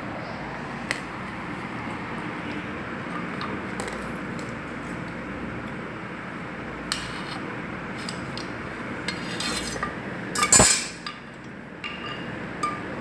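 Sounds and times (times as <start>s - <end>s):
steady background hiss: 0.0s - 13.0s
steel tube scraping metal tray: 9.1s - 11.0s.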